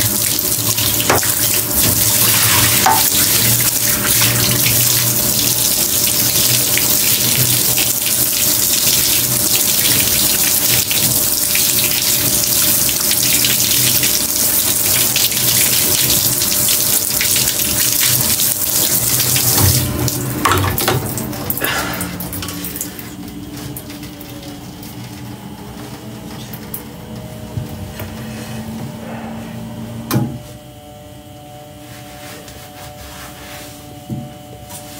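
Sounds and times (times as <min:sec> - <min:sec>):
shower water spraying on hair: 0:00.0 - 0:21.8
water splashing into bathtub: 0:00.0 - 0:23.0.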